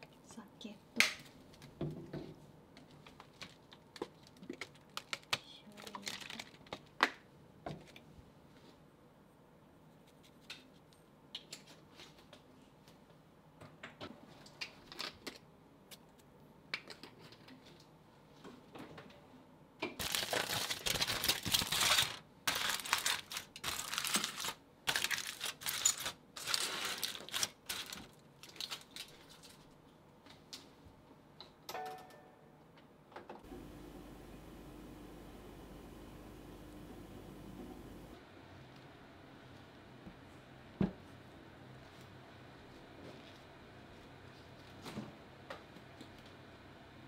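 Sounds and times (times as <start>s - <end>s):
aluminium foil crinkling: 2.8s - 7.0s, 20.0s - 29.8s.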